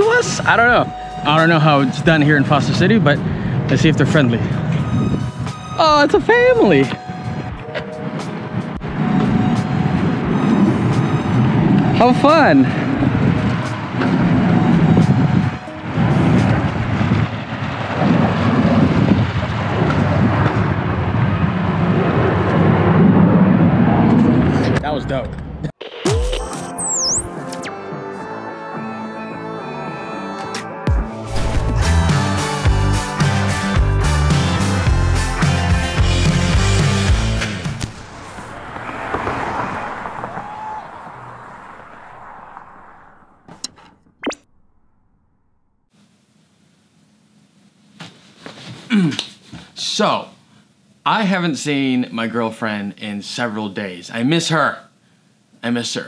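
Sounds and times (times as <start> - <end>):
wind buffeting microphone: 2.4 - 24.8
hissing rumbling wash: 8.0 - 24.6, 36.7 - 43.5
sharp glitch clicks: 25.8 - 27.7, 43.7 - 45.1.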